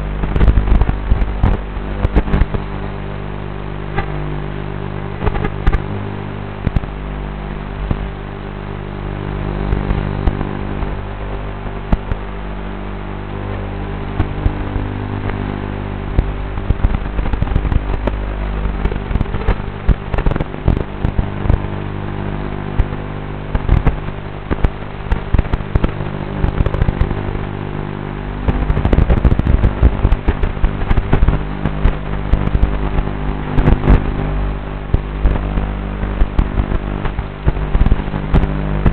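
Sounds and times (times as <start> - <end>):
drone buzzing hum: 0.0 - 38.9
video feed crackles and pops: 0.0 - 38.9.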